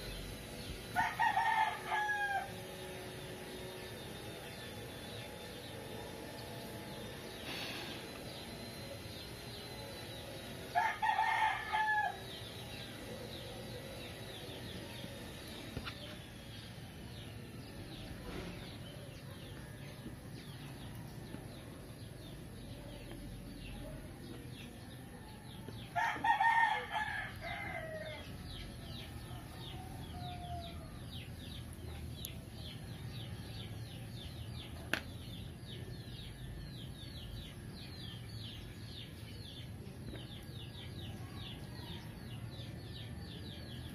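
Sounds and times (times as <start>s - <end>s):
rooster crowing: 0.9s - 2.8s, 10.7s - 12.4s, 25.7s - 28.3s, 28.9s - 31.0s.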